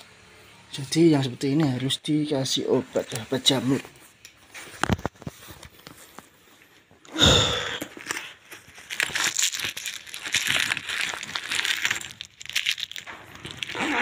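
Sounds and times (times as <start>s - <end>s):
food wrapper crinkling: 7.8s - 14.0s.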